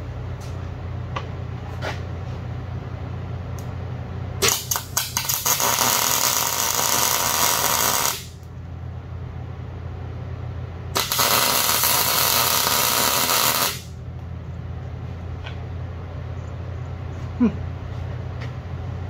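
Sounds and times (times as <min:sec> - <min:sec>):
welding arc crackling: 0:04.4 - 0:08.5, 0:11.0 - 0:14.0.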